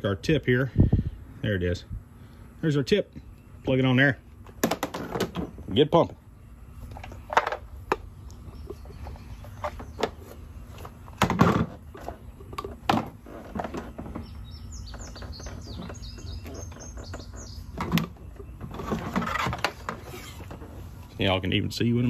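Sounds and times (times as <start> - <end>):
bird chirping: 5.4 - 22.0.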